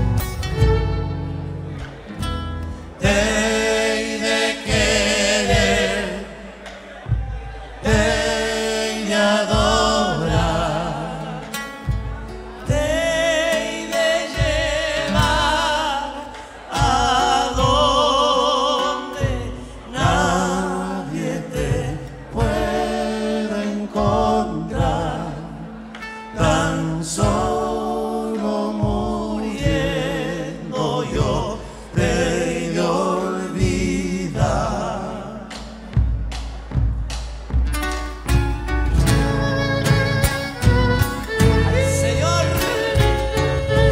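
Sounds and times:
folk band playing: 0:00.0 - 0:43.9
men singing together: 0:02.7 - 0:35.9, 0:41.3 - 0:43.9.

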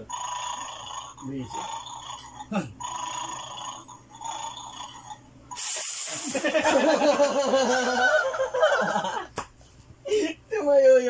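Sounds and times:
short hissing burst: 0:05.5 - 0:06.5
young man laughing hard: 0:06.2 - 0:09.3.

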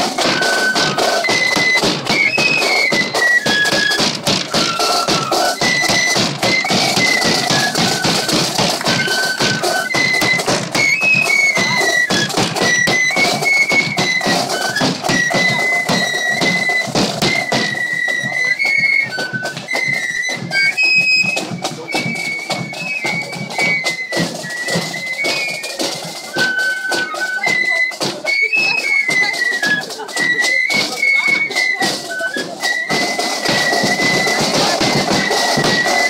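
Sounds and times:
bass drum and side drums: 0:00.0 - 0:17.8, 0:32.9 - 0:36.0
flute melody: 0:00.0 - 0:36.0.

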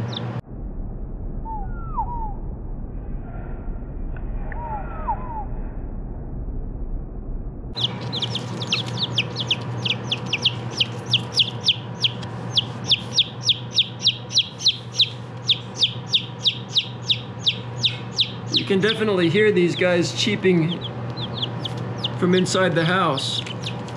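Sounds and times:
baby chicks cheeping: 0:00.0 - 0:00.4, 0:07.8 - 0:23.9
steady low hum: 0:00.0 - 0:23.9.

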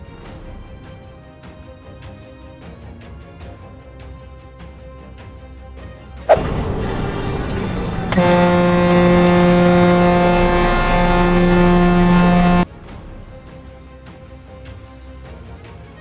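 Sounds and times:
loud bang: 0:06.3 - 0:12.6
vehicle horn blast: 0:06.3 - 0:12.6.

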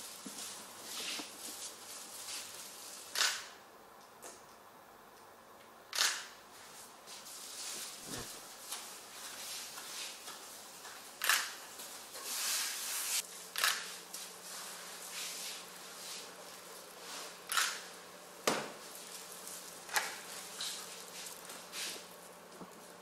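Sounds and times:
soft rustling: 0:00.0 - 0:03.1, 0:06.5 - 0:17.4.

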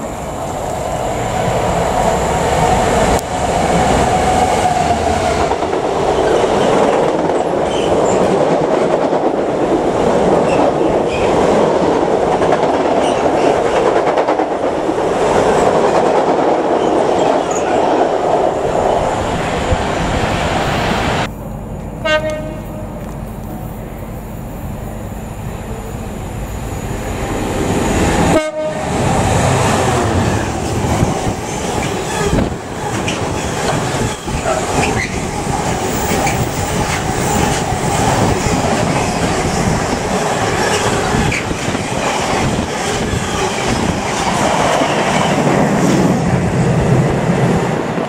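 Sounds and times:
locomotive horn blasts: 0:22.0 - 0:22.8, 0:28.3 - 0:28.9.

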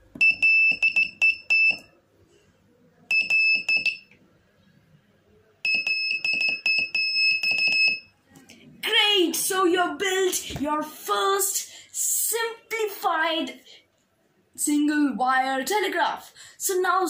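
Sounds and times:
electronic buzzer beeping: 0:03.1 - 0:04.0, 0:05.7 - 0:08.1.

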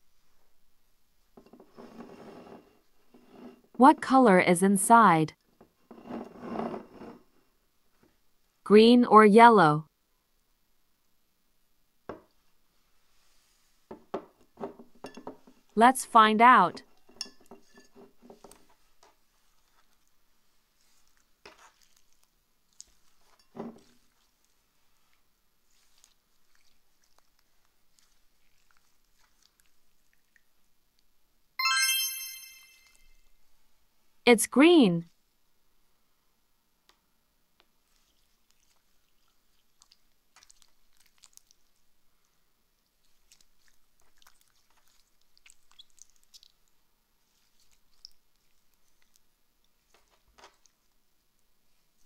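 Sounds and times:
slime squishing: 0:37.9 - 0:41.8, 0:43.0 - 0:50.9.

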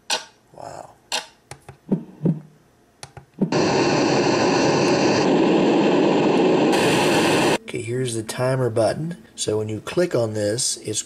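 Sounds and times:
loud white noise hiss: 0:03.4 - 0:11.0.

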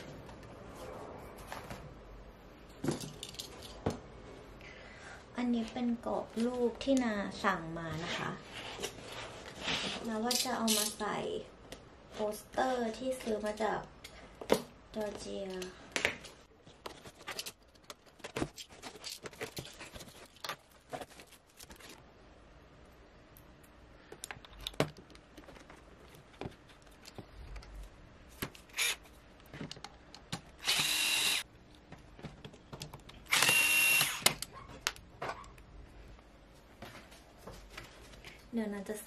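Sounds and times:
electric screwdriver whirring: 0:28.7 - 0:29.0, 0:30.6 - 0:31.4, 0:33.3 - 0:34.3.

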